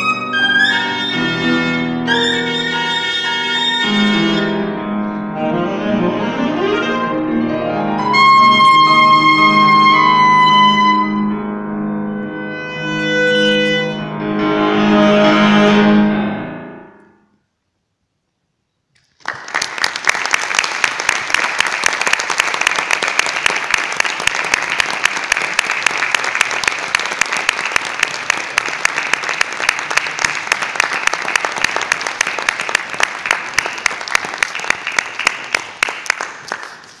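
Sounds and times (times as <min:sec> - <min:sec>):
audience applauding: 0:19.0 - 0:37.0.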